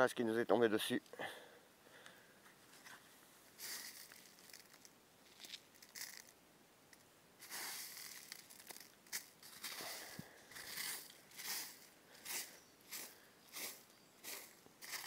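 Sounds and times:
hand sweeping through hailstones: 3.6s - 4.8s, 7.4s - 15.0s.

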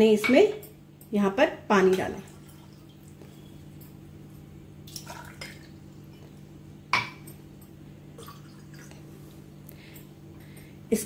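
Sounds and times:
water pouring into glass: 2.2s - 3.2s, 4.9s - 5.9s, 8.2s - 9.0s.

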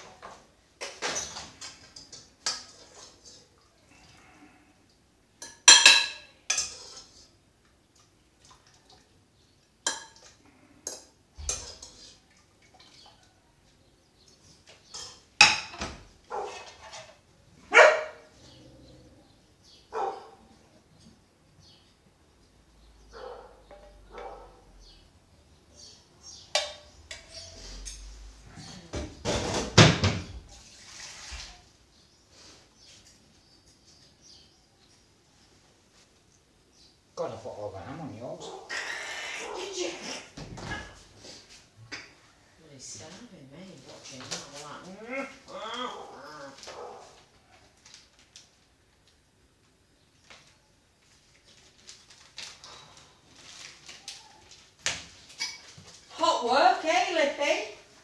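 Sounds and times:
dishes and cutlery clattering: 0.0s - 3.5s, 5.4s - 7.3s, 9.8s - 13.0s, 14.8s - 17.2s, 55.3s - 55.9s
cutlery clinking on plates: 5.4s - 7.2s, 9.8s - 12.2s, 55.4s - 55.8s.

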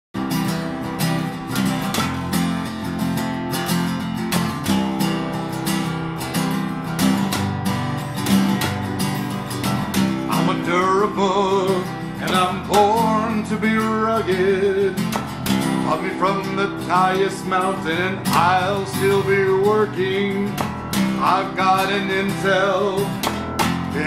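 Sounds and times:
acoustic guitars strummed: 0.2s - 24.0s
person singing: 10.1s - 15.2s, 15.8s - 24.0s.

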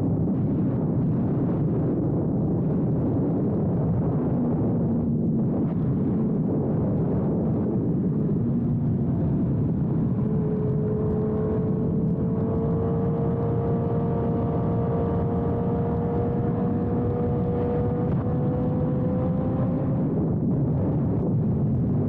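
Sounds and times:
wind rush: 0.0s - 22.0s
motorcycle engine: 8.3s - 20.4s.

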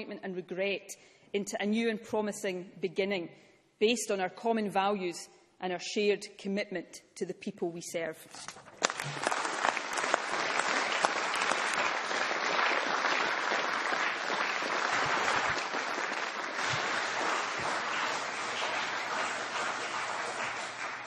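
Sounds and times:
crowd applauding: 8.8s - 21.0s.

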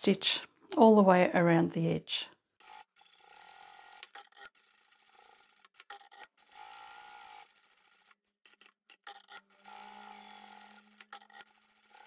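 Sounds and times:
sewing machine motor whine: 2.6s - 8.1s, 9.2s - 12.0s.

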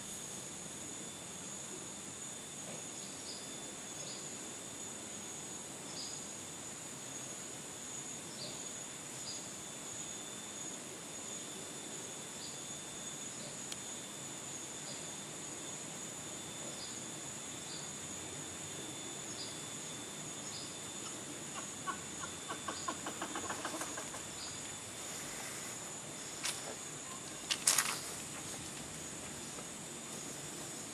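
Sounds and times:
high-pitched insect drone: 0.0s - 30.9s
rapid rattling call: 21.0s - 24.6s.

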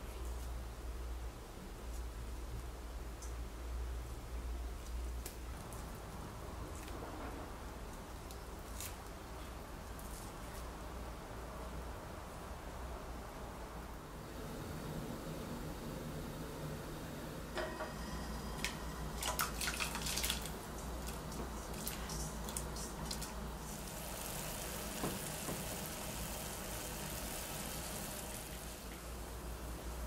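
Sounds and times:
water dripping: 18.6s - 23.4s.

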